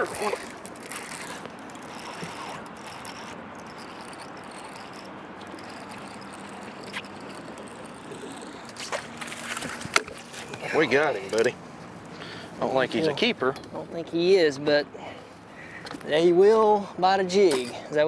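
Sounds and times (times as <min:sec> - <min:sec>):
high insect chirring: 0:00.0 - 0:09.4
outdoor background noise: 0:00.0 - 0:18.0.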